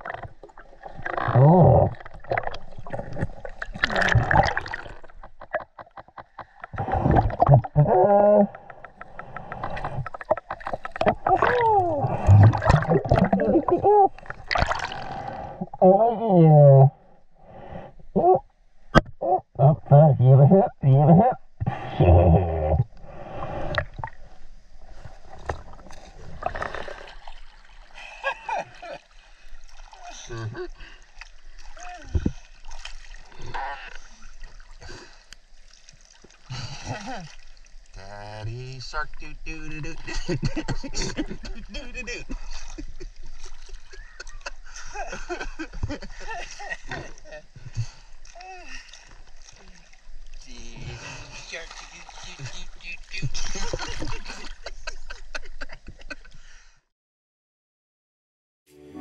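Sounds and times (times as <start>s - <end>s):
water sloshing: 0.0s - 15.4s, 23.7s - 38.0s, 39.0s - 56.2s.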